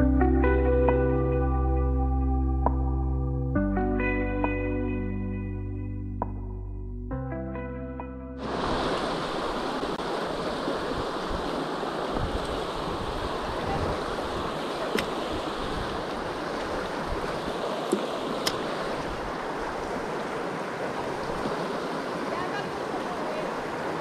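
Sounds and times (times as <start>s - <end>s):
creek water rushing over rocks: 8.4s - 24.0s.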